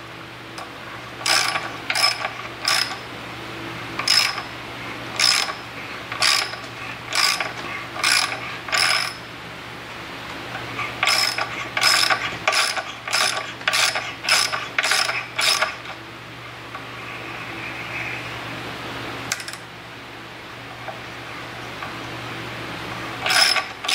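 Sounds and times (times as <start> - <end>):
ratcheting wrench clicking: 1.2 - 3.0, 4.0 - 4.4, 5.2 - 5.6, 6.2 - 9.2, 11.0 - 15.8, 23.2 - 23.9.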